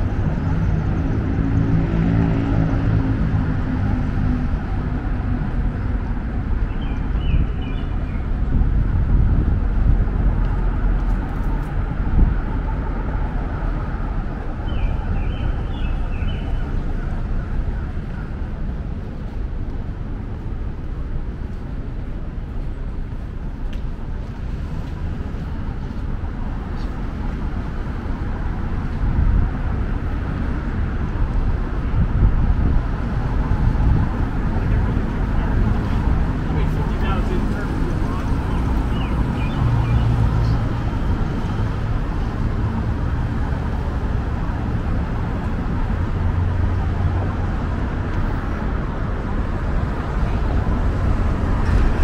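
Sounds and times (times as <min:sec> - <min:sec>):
road traffic rumble: 0:00.0 - 0:52.0
bird chirping: 0:14.6 - 0:16.7, 0:38.4 - 0:40.6.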